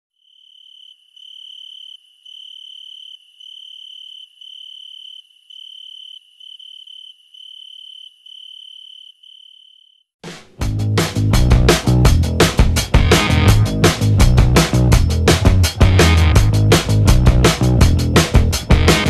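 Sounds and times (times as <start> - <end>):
cricket chirping: 0.2 - 10.1
music with drums and guitar: 10.2 - 19.0.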